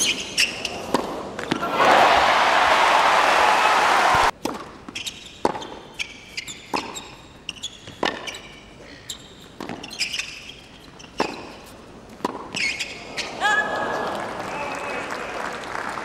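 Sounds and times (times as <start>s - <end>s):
tennis ball bouncing on hard court: 0.4s - 1.7s, 4.1s - 13.0s
crowd applause and cheering: 1.6s - 4.3s, 13.7s - 16.0s.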